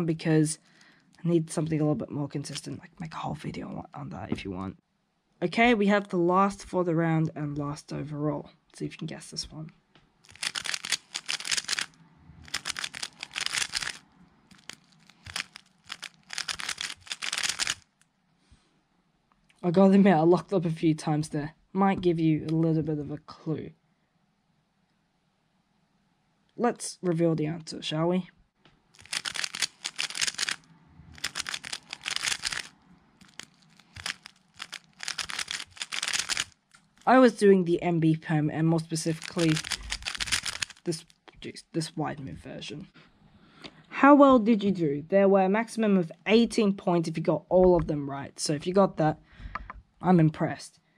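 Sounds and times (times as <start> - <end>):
puzzle cube clicking: 10.3 - 11.9, 12.5 - 18.0, 29.0 - 30.6, 31.2 - 37.1, 39.0 - 41.1.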